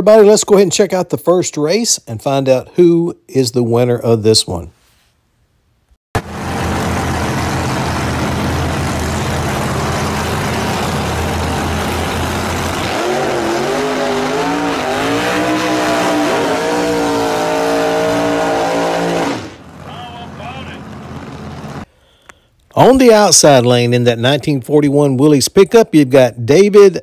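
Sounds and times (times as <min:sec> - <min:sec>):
drag cars running loudly: 0:06.2 - 0:21.9
engine revving: 0:06.2 - 0:21.9.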